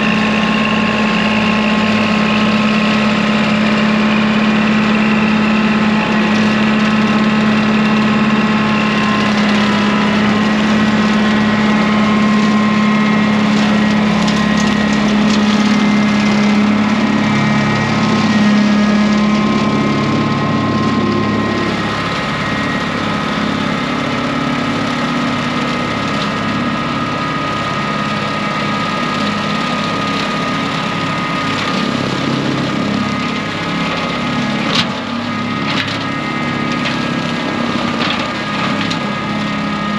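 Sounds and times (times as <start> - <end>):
rotary cutter cutting grass: 0.0 - 39.9
tractor diesel engine running: 0.0 - 39.9.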